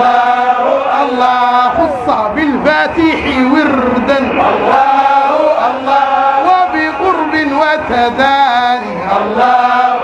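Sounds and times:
man chanting into a microphone: 0.9 - 4.6, 5.5 - 9.4.

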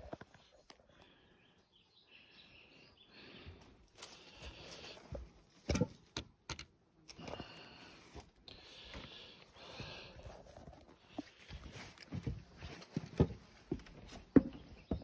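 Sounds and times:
footsteps shuffling on wood: 8.1 - 15.0.

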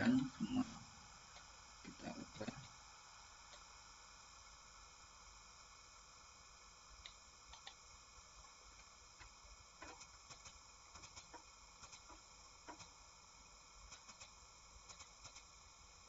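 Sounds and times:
faint room hiss: 0.0 - 16.0
computer mouse clicking: 7.0 - 7.8, 9.2 - 12.9, 13.9 - 15.5.

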